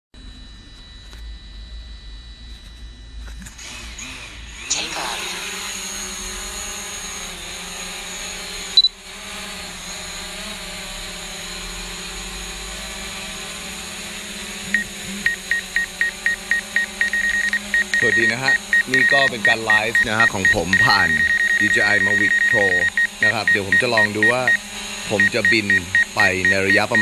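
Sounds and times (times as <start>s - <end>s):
drone propellers whining: 2.0s - 27.0s
short loud beep: 15.3s - 24.6s.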